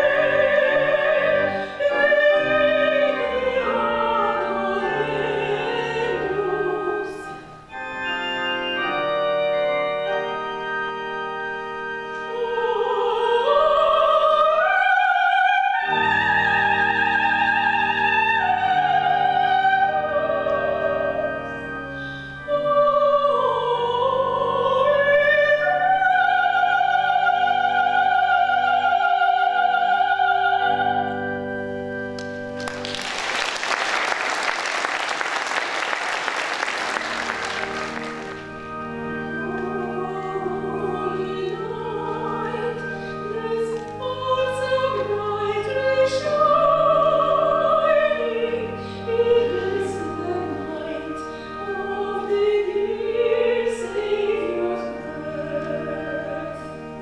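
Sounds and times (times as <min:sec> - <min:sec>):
soprano singing with vibrato: 0:00.0 - 0:07.5, 0:12.2 - 0:31.4, 0:39.4 - 0:57.0
sustained organ: 0:00.0 - 0:57.0.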